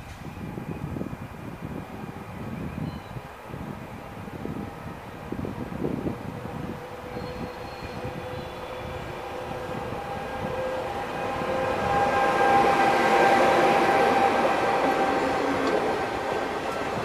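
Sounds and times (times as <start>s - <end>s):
electric train pulling away: 4.3s - 17.0s.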